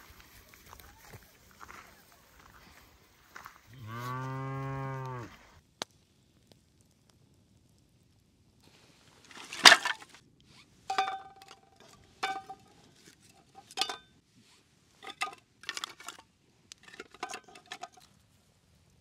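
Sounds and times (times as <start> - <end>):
metal objects clinking: 9.3 - 10.1, 10.9 - 14.0, 15.0 - 18.1.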